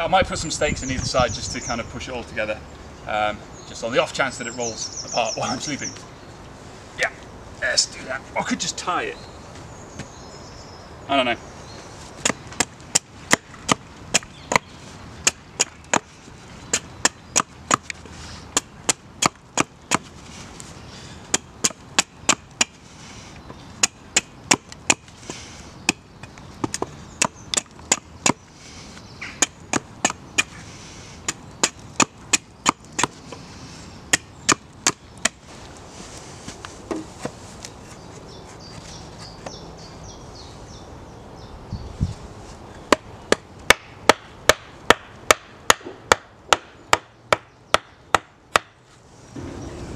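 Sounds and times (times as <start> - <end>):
axe chopping wooden stake: 12.2 - 16.1, 16.7 - 20.1, 21.3 - 22.8, 23.8 - 25.2, 25.8 - 28.4, 29.4 - 30.6, 31.3 - 33.2, 34.1 - 35.4, 42.9 - 48.8.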